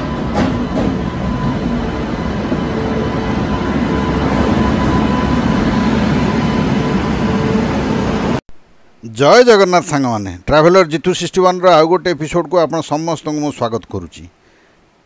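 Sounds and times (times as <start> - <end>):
train wheels and machinery rolling: 0.0 - 8.4
faint high whine: 0.0 - 9.6.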